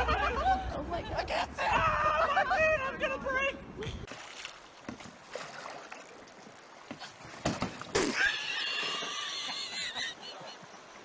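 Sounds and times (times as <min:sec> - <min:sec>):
knocks and thumps in rowboat: 0:06.9 - 0:07.9
high-pitched squeal of laughter: 0:08.1 - 0:10.6.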